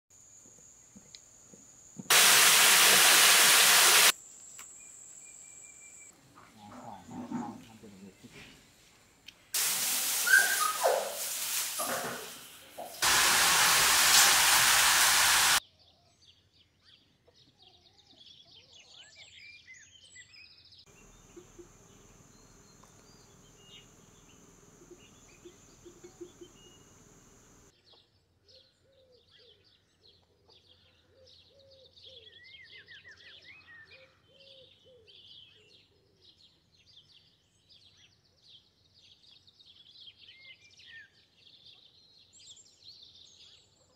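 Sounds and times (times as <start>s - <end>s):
loud even hissing: 2.1s - 4.2s, 9.6s - 15.6s
birds chirping and whistling: 10.2s - 11.1s.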